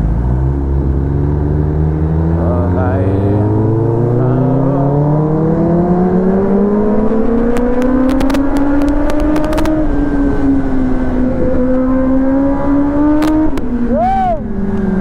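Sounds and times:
motorcycle engine accelerating: 0.0s - 15.0s
wind noise: 5.0s - 15.0s.

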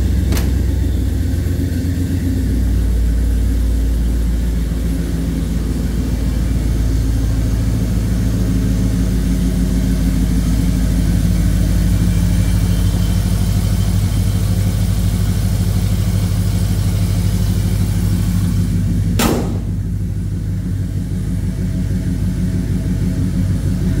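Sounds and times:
car engine idling: 0.0s - 24.0s
sharp click: 19.2s - 19.7s.

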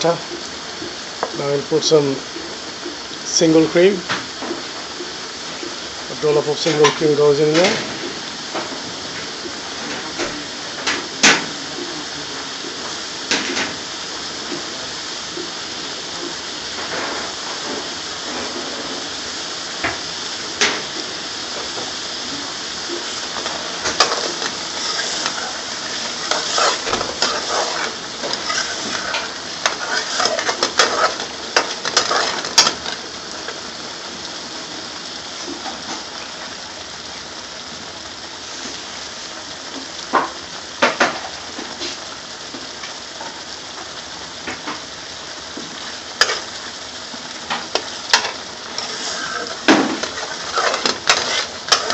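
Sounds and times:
sauce sizzling in a pan: 0.0s - 51.9s
stirring clatter: 23.2s - 33.6s, 47.5s - 51.9s.

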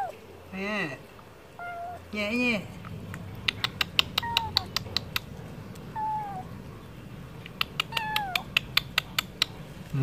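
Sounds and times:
kitten mewing: 3.1s - 5.3s, 5.9s - 6.5s, 7.5s - 9.4s
quick sharp clicks: 3.1s - 5.3s, 7.4s - 9.6s.

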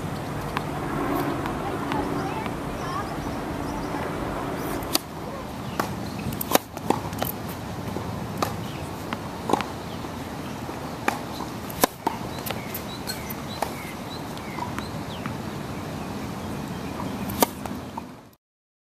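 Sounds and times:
racket hitting tennis ball: 0.0s - 3.1s, 4.6s - 13.8s, 17.2s - 18.1s
birds chirping: 0.0s - 18.2s
steady outdoor hum: 0.0s - 18.4s.

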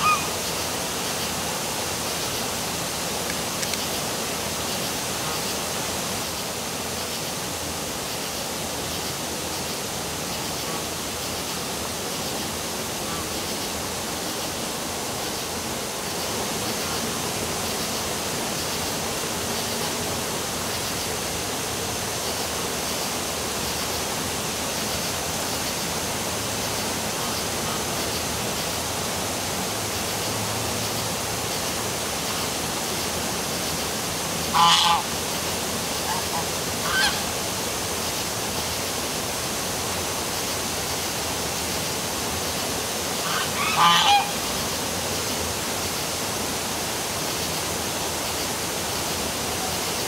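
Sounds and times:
goose honking: 0.0s - 0.3s, 34.5s - 35.1s, 36.0s - 37.3s, 43.2s - 44.4s
waterfall rushing: 0.0s - 50.0s.

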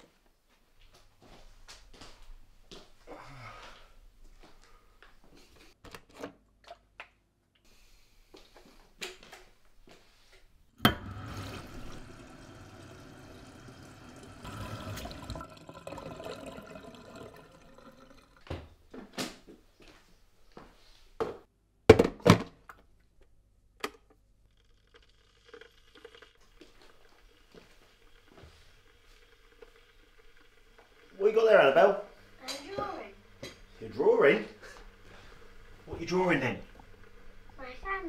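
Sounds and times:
tap running into kettle: 10.8s - 18.7s, 25.6s - 33.9s, 34.6s - 37.6s.

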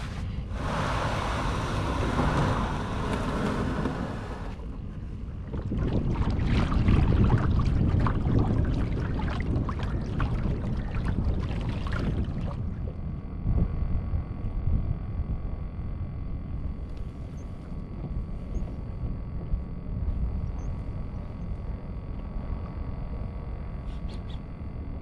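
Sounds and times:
water lapping against hull: 0.0s - 13.1s
wind on microphone: 0.0s - 25.0s.

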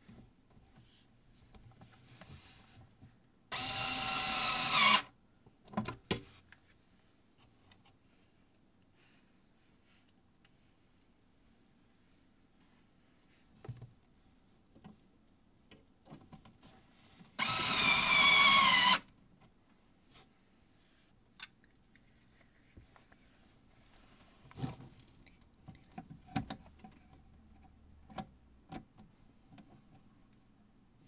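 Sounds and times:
power screwdriver whining: 3.5s - 5.1s, 17.4s - 19.0s
clicks and knocks of handling: 24.5s - 30.1s.

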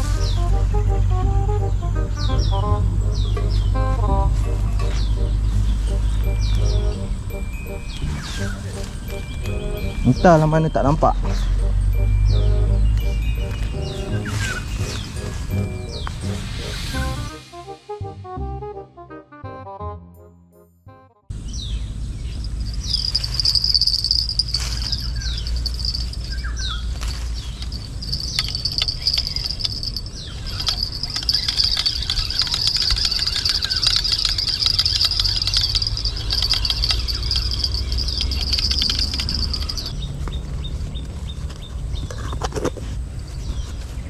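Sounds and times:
bird chirps: 1.6s - 17.2s, 21.4s - 42.3s
shrill insect call: 4.9s - 17.4s, 21.4s - 40.4s
scattered clicks: 27.0s - 40.4s.

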